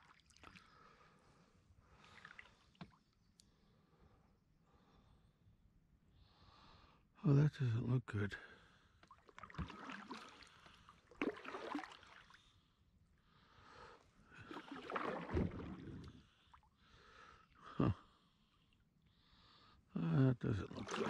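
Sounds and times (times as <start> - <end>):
kayak paddle splashing in water: 9.0 - 12.4, 14.4 - 16.2, 20.7 - 21.0.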